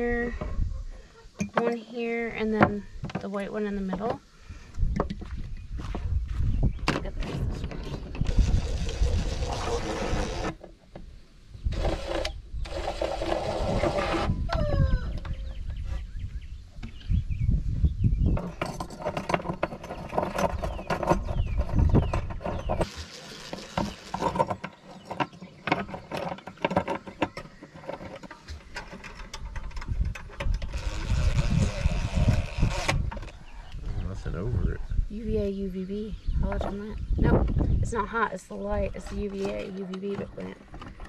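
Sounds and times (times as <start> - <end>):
cordless drill driving screws: 22.8 - 24.5
clicks and knocks of handling: 23.5 - 30.7.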